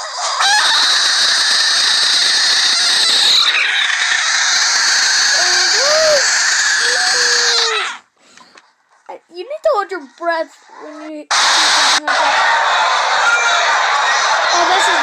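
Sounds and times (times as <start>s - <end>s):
frog screaming: 0.2s - 8.0s, 10.6s - 12.1s.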